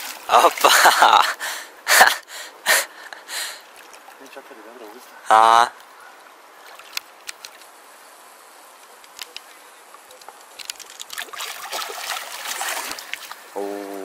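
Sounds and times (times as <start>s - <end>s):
fish splashing at water surface: 10.6s - 13.5s.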